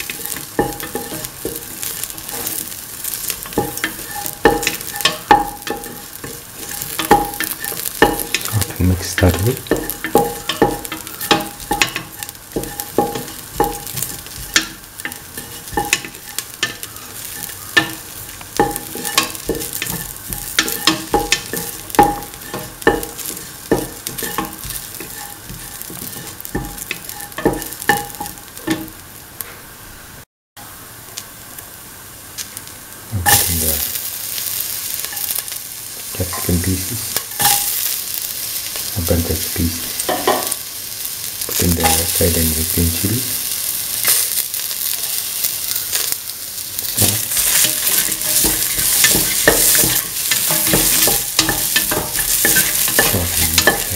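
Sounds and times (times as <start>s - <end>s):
spatula scraping metal pan: 0.0s - 28.9s, 47.2s - 53.9s
onions frying in hot oil: 0.0s - 53.9s.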